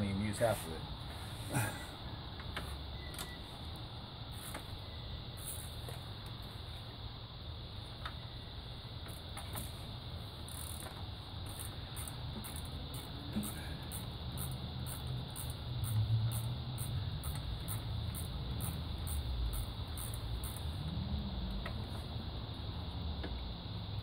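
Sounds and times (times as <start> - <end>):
socket ratchet clicking: 10.4 - 20.8.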